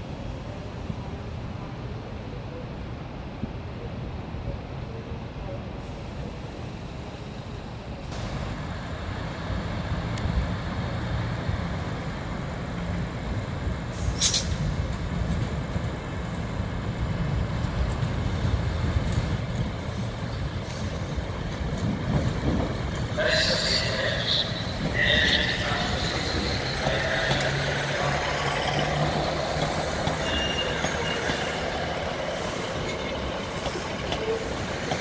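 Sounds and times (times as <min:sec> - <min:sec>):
diesel train engine rumble: 0:00.0 - 0:35.0
sharp air hiss: 0:13.9 - 0:14.7.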